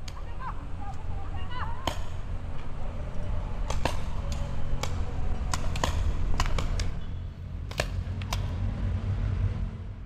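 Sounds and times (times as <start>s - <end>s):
paintball markers firing: 3.7s - 7.0s.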